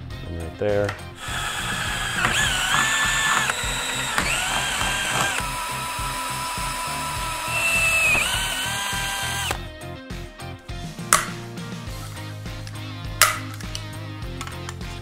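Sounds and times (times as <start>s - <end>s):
power drill boring through metal: 1.2s - 9.6s.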